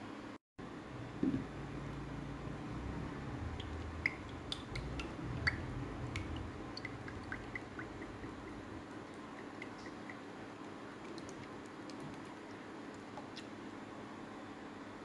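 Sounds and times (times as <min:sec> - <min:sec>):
small liquid plinks and drips: 0:03.6 - 0:13.7.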